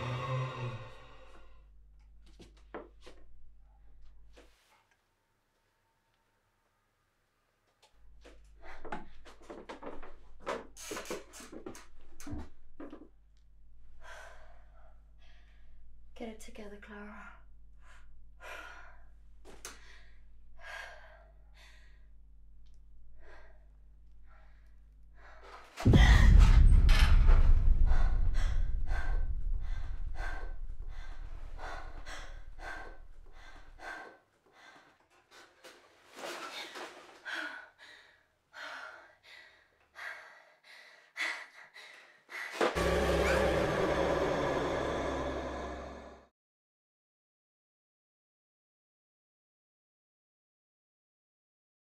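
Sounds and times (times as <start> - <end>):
low hum: 13.3 - 34.0, 42.8 - 46.3
rapid heavy breathing: 23.1 - 43.0
low rumbling drone: 25.9 - 33.9, 42.8 - 46.3.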